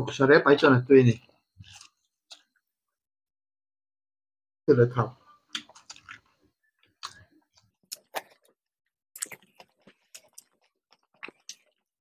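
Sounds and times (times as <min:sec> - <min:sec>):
people chewing food: 0:01.6 - 0:02.6, 0:05.4 - 0:12.0.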